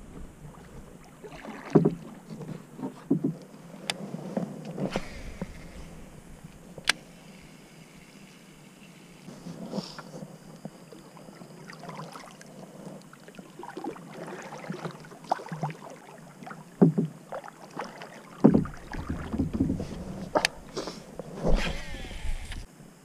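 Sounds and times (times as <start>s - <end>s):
paddle splashing water: 0.0s - 8.3s, 9.2s - 22.2s
paddle knocking plastic hull: 0.1s - 3.4s, 16.8s - 20.7s.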